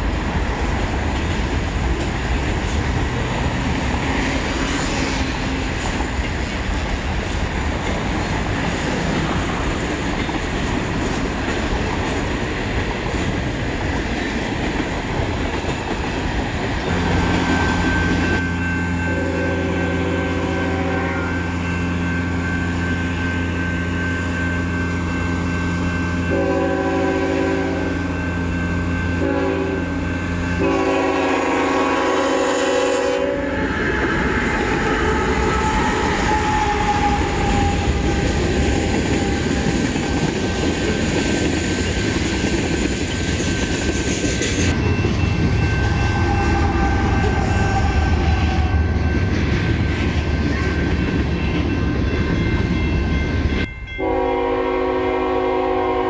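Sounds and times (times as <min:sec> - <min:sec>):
diesel locomotive engine running: 0:00.0 - 0:56.0
train wheels on rails: 0:00.0 - 0:56.0
train horn blasts: 0:16.9 - 0:40.3, 0:45.6 - 0:49.3, 0:53.9 - 0:56.0.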